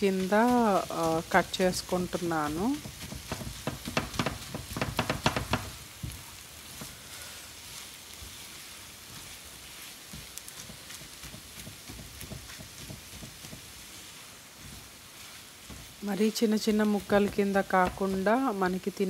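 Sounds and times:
egg sizzling: 0.0 - 19.0
spatula knocking against pan: 2.8 - 5.8, 10.6 - 13.8.

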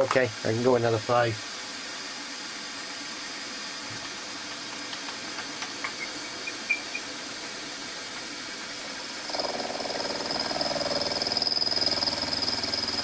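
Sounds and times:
milling machine cutting steel: 9.1 - 13.0.

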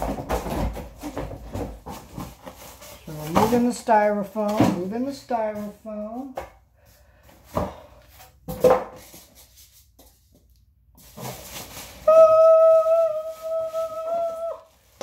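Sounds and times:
styrofoam rustling against cardboard: 0.9 - 4.2, 11.0 - 15.0
high squeak of foam sliding: 11.2 - 14.6.

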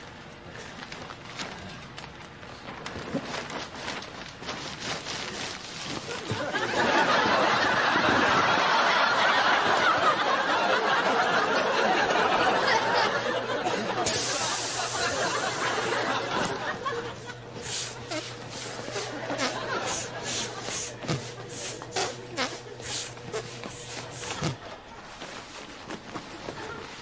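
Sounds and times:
plastic bin bag rustling: 0.8 - 7.1
studio audience laughter: 6.0 - 25.1.

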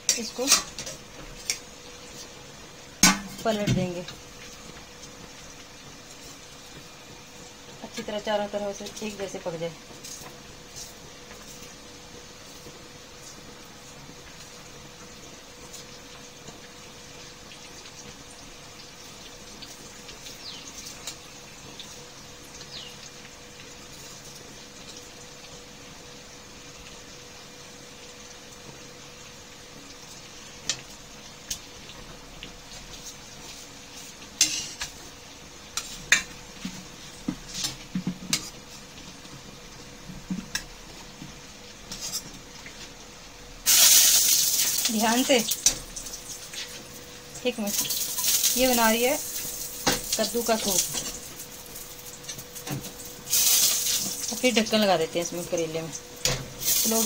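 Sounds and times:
food sizzling in oil: 0.0 - 57.0
steel spatula scraping a pan: 34.4 - 34.8.

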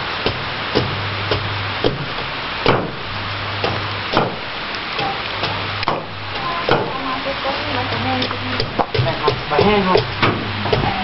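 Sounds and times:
blade chopping on wooden block: 2.6 - 3.0, 3.6 - 4.4.

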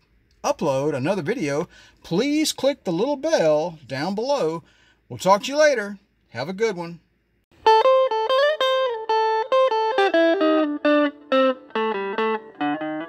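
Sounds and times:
plucked guitar notes: 7.6 - 13.0.

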